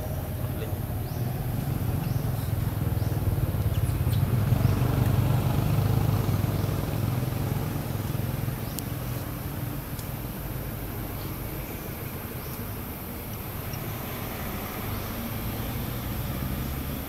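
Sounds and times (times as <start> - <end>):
vehicle engine passing by: 0.0 - 9.5, 13.5 - 17.0.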